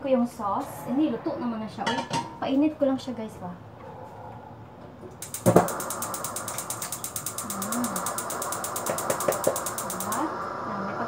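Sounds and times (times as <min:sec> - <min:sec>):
appliance hum: 0:05.0 - 0:11.0
rapid mechanical clicking: 0:05.2 - 0:10.4.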